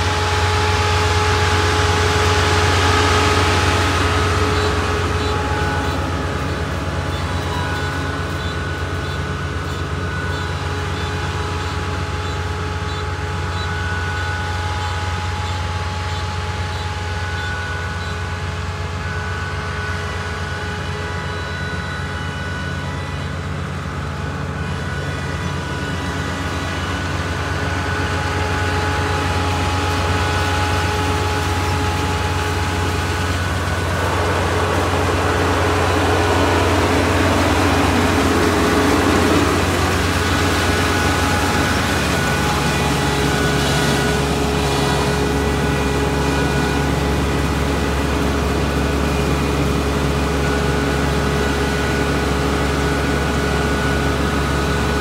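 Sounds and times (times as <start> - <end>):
combine harvester engine drone: 0.0 - 55.0
whining machinery tones: 0.0 - 55.0
rushing noise: 25.7 - 49.0.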